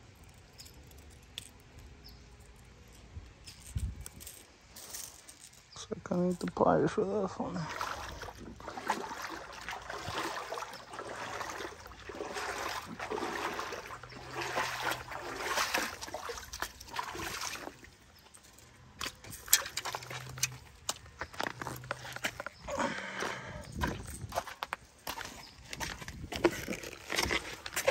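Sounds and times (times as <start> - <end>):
close handling noise: 0.0 - 6.6, 18.2 - 22.7
water trickling and splashing: 7.2 - 27.9
footsteps on gravel: 7.6 - 27.9.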